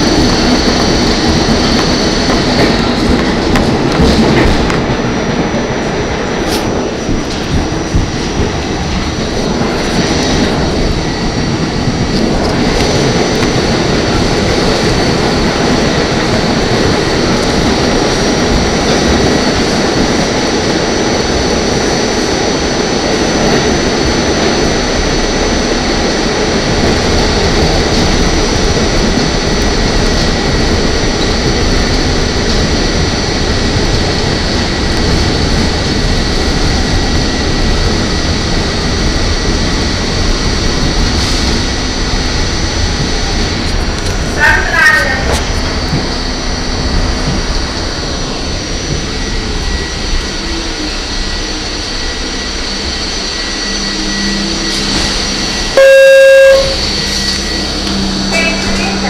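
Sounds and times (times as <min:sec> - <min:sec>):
subway wheels roaring on rail: 0:00.0 - 0:59.0
high whine: 0:45.9 - 0:59.0.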